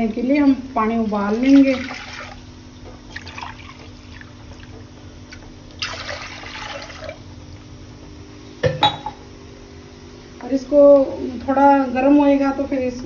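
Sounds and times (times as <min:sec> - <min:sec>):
faint steady hum: 0:00.0 - 0:13.0
water pouring into steel pot: 0:05.8 - 0:07.2.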